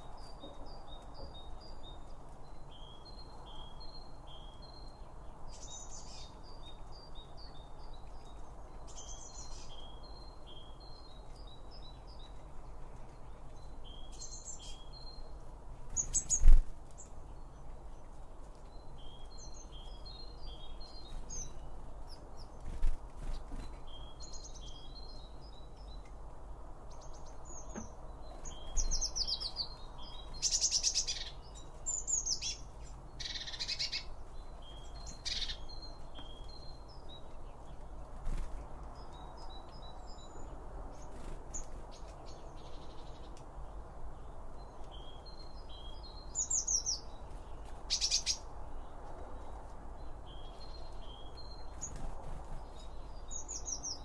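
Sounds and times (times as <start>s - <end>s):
songbirds chirping: 0.0s - 54.0s.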